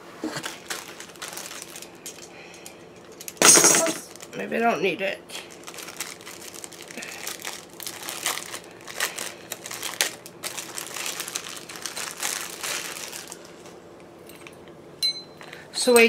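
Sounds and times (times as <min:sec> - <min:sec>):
plastic packaging crinkling: 0:00.2 - 0:04.4, 0:05.4 - 0:13.8.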